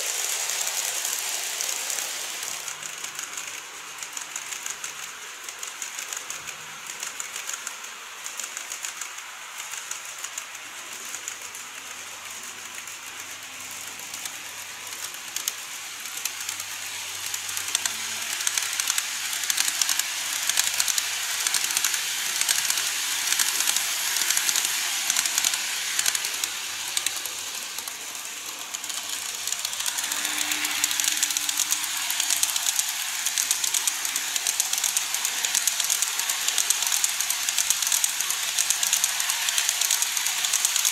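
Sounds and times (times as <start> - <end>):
model train wheels clicking on track: 0.0 - 40.9.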